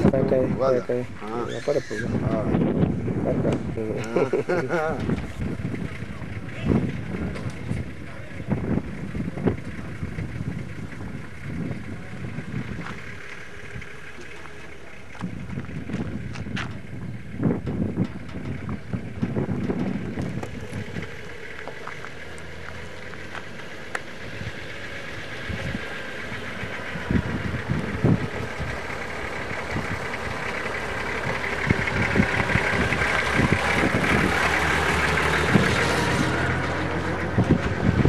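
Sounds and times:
wind buffeting microphone: 0:02.0 - 0:14.2, 0:15.0 - 0:38.0
low thumps: 0:15.2 - 0:24.1.

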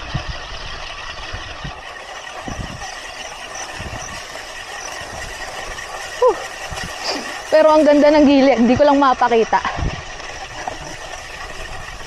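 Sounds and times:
bike rolling over rough trail: 0:00.0 - 0:12.0
brake rotor rubbing whine: 0:10.2 - 0:12.0.

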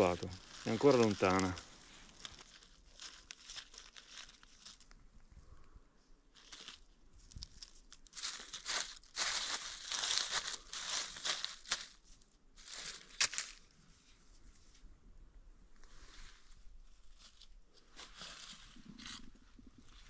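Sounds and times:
dry leaves rustling and crackling: 0:00.0 - 0:05.0, 0:06.3 - 0:13.7, 0:16.9 - 0:19.2.

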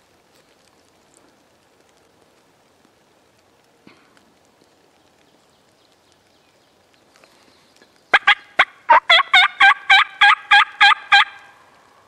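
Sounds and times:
turkey call yelps: 0:08.1 - 0:11.5.

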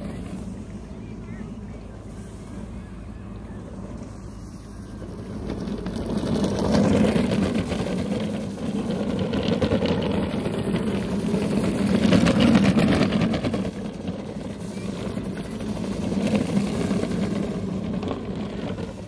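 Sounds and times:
low motor hum: 0:00.0 - 0:19.0
tyres rushing over wet sand: 0:00.0 - 0:19.0.

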